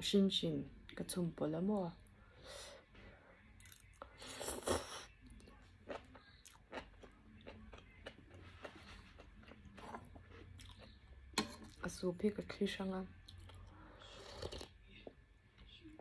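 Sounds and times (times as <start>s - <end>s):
chewing crunchy mushrooms: 5.8s - 11.2s.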